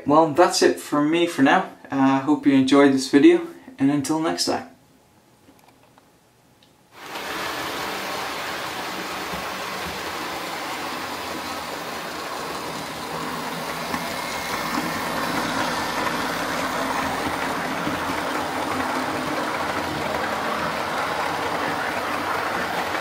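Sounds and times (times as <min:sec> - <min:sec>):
model train motor hum and wheel rumble: 0:08.9 - 0:23.0.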